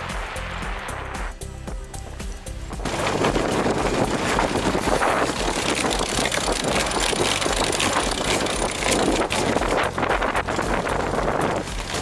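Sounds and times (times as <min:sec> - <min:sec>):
wind buffeting microphone: 0:02.7 - 0:12.0
water rushing along hull: 0:02.8 - 0:12.0.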